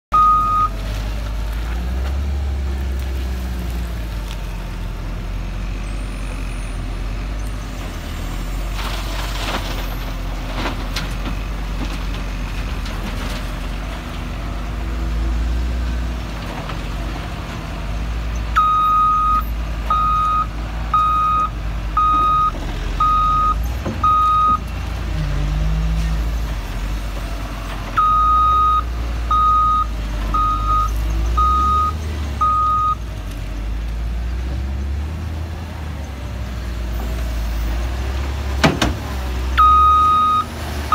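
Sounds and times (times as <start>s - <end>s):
diesel engine rumbling: 0.0s - 40.9s
reverse alarm beeping: 0.1s - 0.7s, 18.6s - 24.6s, 28.0s - 33.0s, 39.6s - 40.5s.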